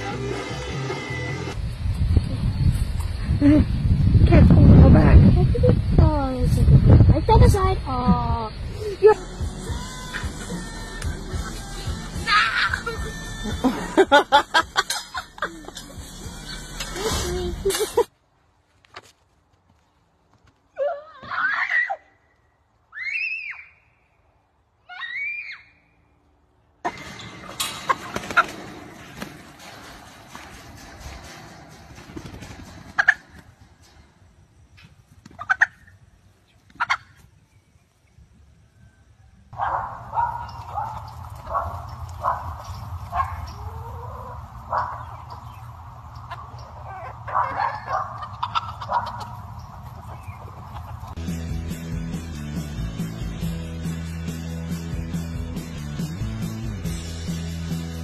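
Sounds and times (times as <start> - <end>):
child shrieking: 24.9 - 25.7
dog barking: 39.6 - 43.6, 44.7 - 45.1, 47.0 - 48.2, 48.9 - 49.2.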